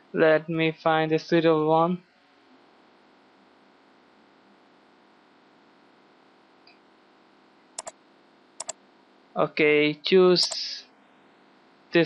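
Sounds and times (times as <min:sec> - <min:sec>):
computer mouse clicks: 0:08.6 - 0:08.8.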